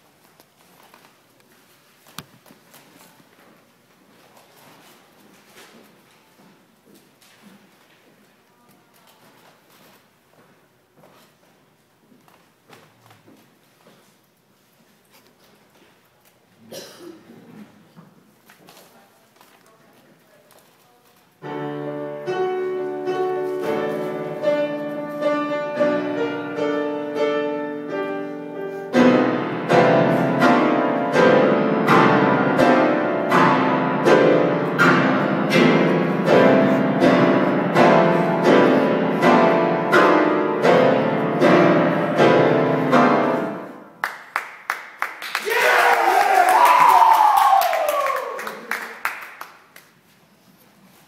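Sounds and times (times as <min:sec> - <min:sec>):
classical piano piece: 0:21.4 - 0:44.0.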